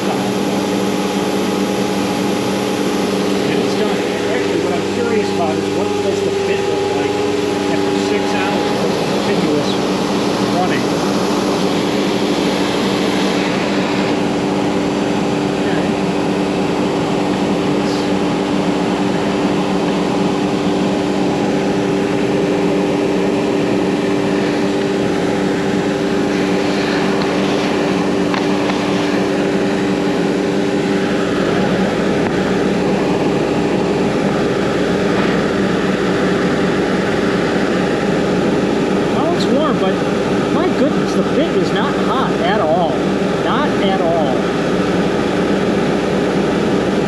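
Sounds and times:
router spindle cutting wood: 0.0 - 16.4, 23.4 - 41.4
dust collection suction: 24.2 - 32.9.

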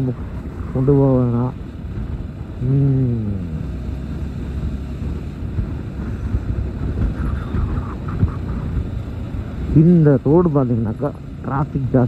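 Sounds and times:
motorcycle engine rumble: 0.0 - 12.0
wind buffeting the microphone: 4.7 - 9.6.

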